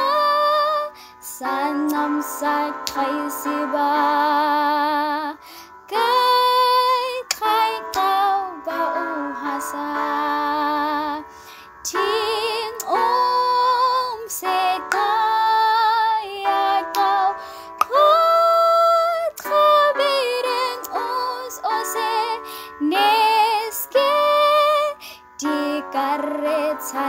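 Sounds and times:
woman singing with vibrato: 0.0 - 11.3, 11.9 - 27.0
singer breathing: 5.4 - 5.9, 11.3 - 11.8, 17.4 - 17.8, 22.4 - 22.8, 25.0 - 25.4.

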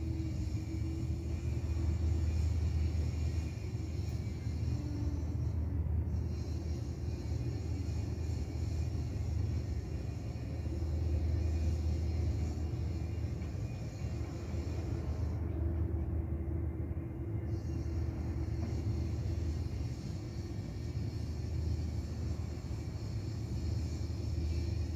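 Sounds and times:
distant city traffic rumble: 0.0 - 24.9.

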